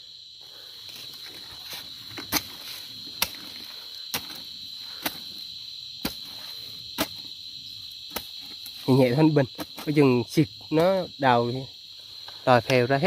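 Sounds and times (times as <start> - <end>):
crickets chirping: 0.0 - 13.0
hoe chopping into soil: 1.6 - 5.4, 6.0 - 7.3, 8.1 - 8.8.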